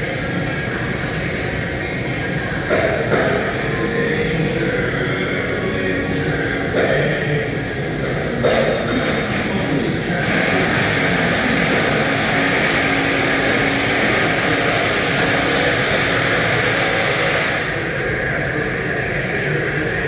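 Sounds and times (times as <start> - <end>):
machine hissing: 7.6 - 19.9.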